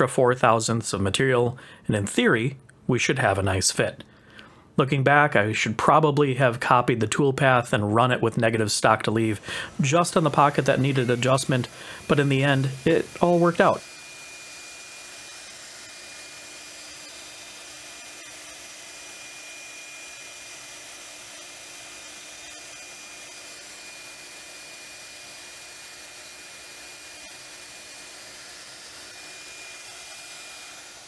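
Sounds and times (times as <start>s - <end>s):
router spindle whine and hiss: 9.0s - 31.0s.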